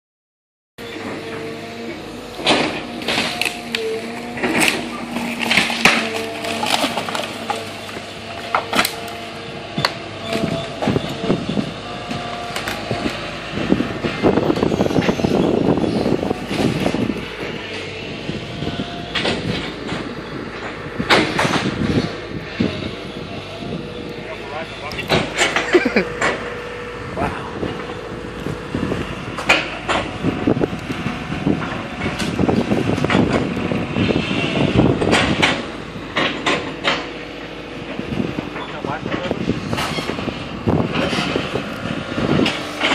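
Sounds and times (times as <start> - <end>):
excavator engine hum: 0.8 - 42.9
hydraulic whine: 0.8 - 42.9
low rough machine rumble: 0.8 - 42.9
debris crunching into metal dumpster: 2.4 - 9.1.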